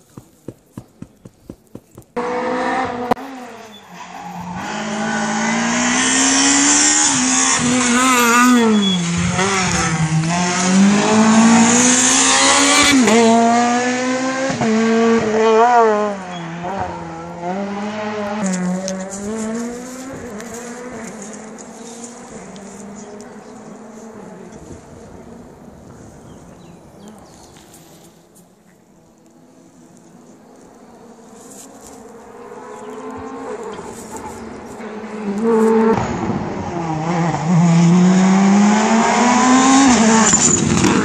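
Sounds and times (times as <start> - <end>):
race car engine revving: 2.1 - 3.8, 4.4 - 25.3, 30.8 - 41.0.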